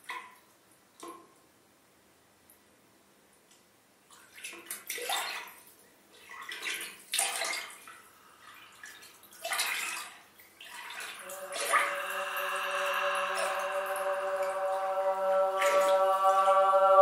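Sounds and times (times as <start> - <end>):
splashing sloshing water: 4.1 - 12.0
choir-like sung tones: 11.1 - 17.0.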